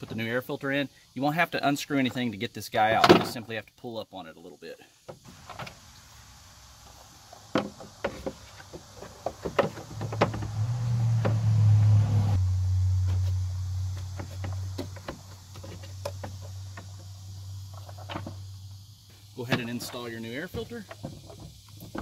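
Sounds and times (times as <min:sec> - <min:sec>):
steady low hum: 0:05.3 - 0:19.5.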